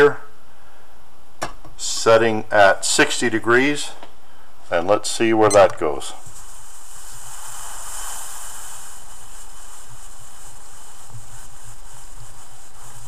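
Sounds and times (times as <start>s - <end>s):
stove flame hissing: 6.0s - 13.0s.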